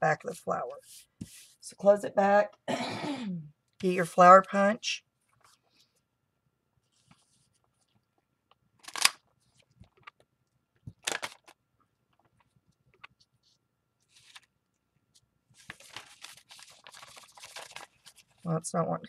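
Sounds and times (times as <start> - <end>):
paper being handled: 12.3 - 14.5, 15.1 - 18.5.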